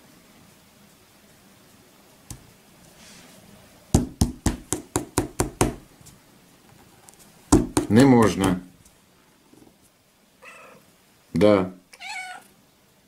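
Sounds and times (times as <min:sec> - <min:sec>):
knocks on a tabletop: 0:04.0 - 0:05.8, 0:07.5 - 0:08.6.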